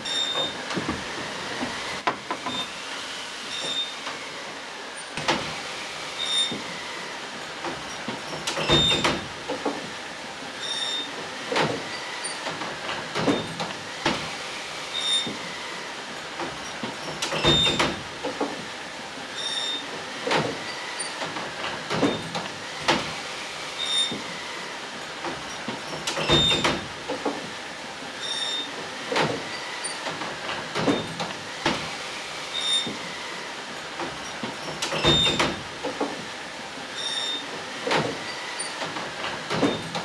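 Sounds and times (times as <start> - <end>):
knocks and clanks: 0.4 - 2.6, 38.8 - 40.0.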